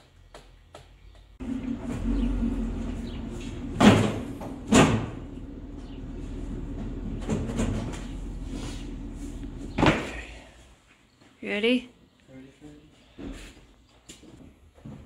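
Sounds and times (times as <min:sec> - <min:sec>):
steady low hum: 0:01.4 - 0:10.9
sheet metal clunks: 0:03.4 - 0:05.3.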